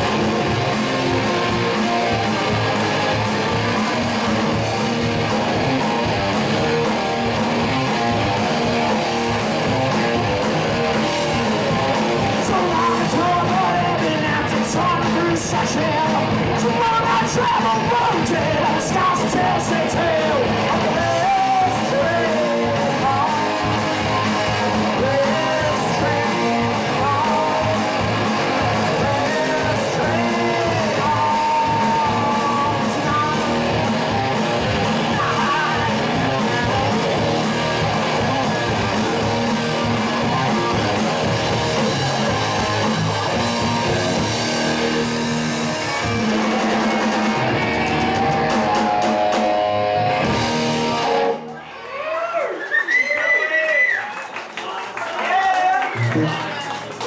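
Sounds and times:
live rock band playing: 0:00.0 - 0:51.9, 0:55.8 - 0:57.0
man singing: 0:12.2 - 0:37.5.

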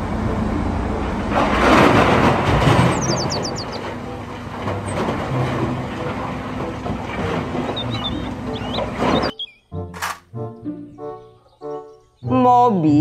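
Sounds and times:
diesel engine running heavily: 0:00.0 - 0:09.3
soil rushing into truck: 0:01.1 - 0:09.3
birds chirping: 0:02.7 - 0:05.0, 0:07.0 - 0:13.0.

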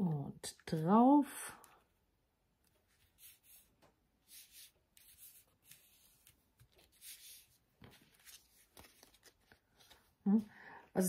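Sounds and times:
paper rubbing and rustling: 0:02.8 - 0:10.2.

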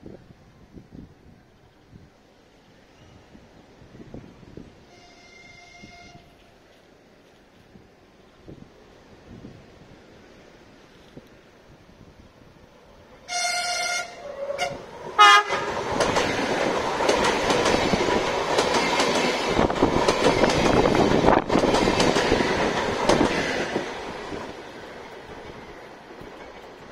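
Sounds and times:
train passing with loud rush: 0:00.0 - 0:26.9
train horn blasts: 0:04.8 - 0:06.4, 0:13.2 - 0:15.8
train wheels clicking over rail joints: 0:14.9 - 0:26.9.

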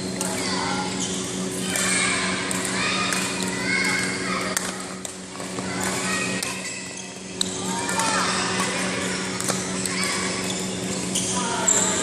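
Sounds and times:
steady low hum: 0:00.0 - 0:12.0
children's voices: 0:00.2 - 0:01.0, 0:01.6 - 0:07.0, 0:07.6 - 0:10.6
rackets hitting shuttlecocks: 0:01.7 - 0:06.6, 0:07.3 - 0:11.2.

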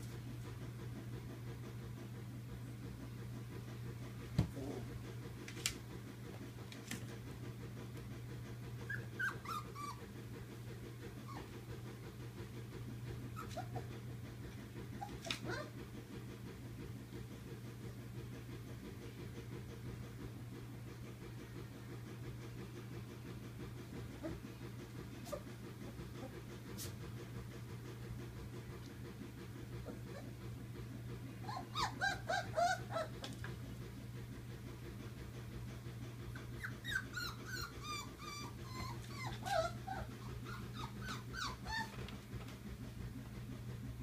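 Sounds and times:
steady low hum: 0:00.0 - 0:44.0
puppies squeaking and whimpering: 0:08.9 - 0:10.0, 0:31.5 - 0:33.2, 0:36.6 - 0:42.1.

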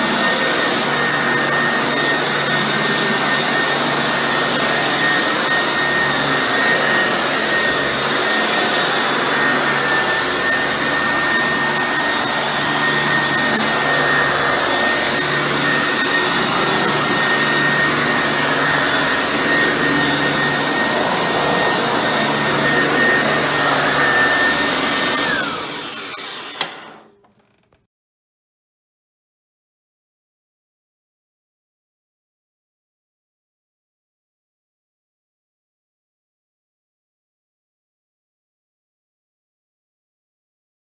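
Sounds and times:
vacuum cleaner motor whine: 0:00.0 - 0:27.6.

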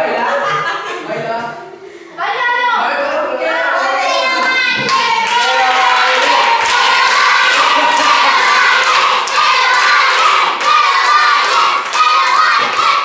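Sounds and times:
children singing: 0:02.8 - 0:13.0
hands clapping: 0:04.4 - 0:13.0.

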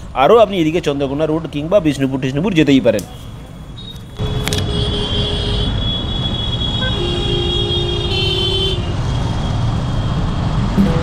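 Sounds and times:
vehicle horns honking: 0:04.2 - 0:09.0, 0:10.8 - 0:11.0.

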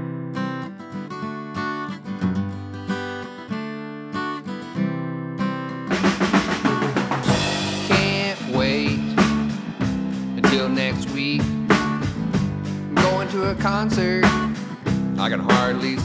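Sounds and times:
acoustic guitar strumming: 0:00.0 - 0:16.0
bass guitar: 0:05.9 - 0:16.0
drum kit: 0:05.9 - 0:16.0.

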